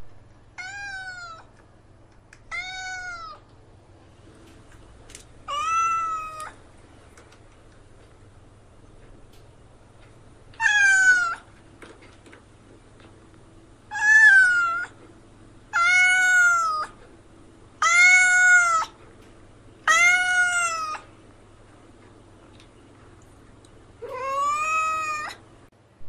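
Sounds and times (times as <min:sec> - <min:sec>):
cat meowing: 0:00.6 - 0:01.5, 0:02.5 - 0:03.4, 0:05.5 - 0:06.6, 0:10.6 - 0:11.5, 0:13.9 - 0:15.0, 0:15.7 - 0:17.0, 0:17.8 - 0:19.0, 0:19.8 - 0:21.1, 0:24.0 - 0:25.4.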